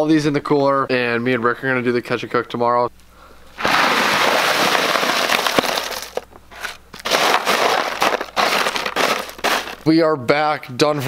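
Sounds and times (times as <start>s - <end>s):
ice cubes pouring into cooler: 3.6s - 9.9s.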